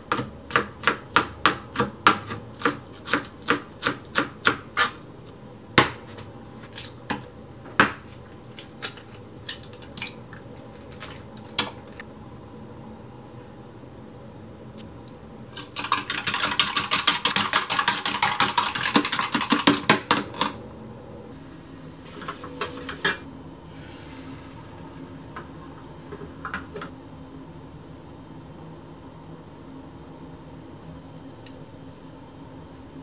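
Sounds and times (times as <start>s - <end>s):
wire whisk beating eggs in cup: 15.6s - 20.6s.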